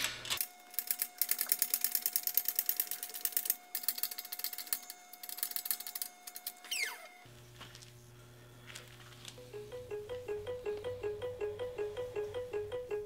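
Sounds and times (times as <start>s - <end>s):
short falling squeal: 6.6s - 7.3s.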